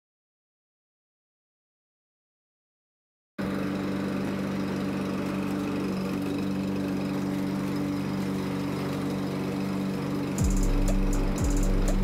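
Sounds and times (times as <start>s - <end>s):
lawn mower engine running: 3.4s - 12.0s.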